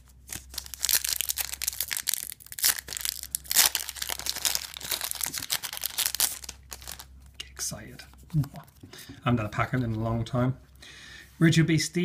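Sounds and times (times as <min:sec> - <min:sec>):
foil wrapper crinkling and tearing: 0:00.3 - 0:07.1.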